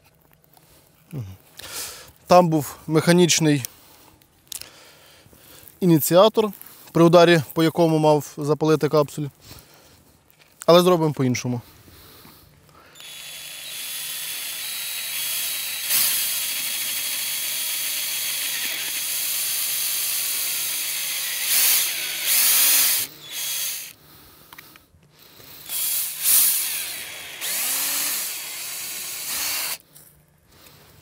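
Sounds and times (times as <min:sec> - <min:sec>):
cordless drill into metal: 0:12.9 - 0:24.0, 0:25.6 - 0:29.8.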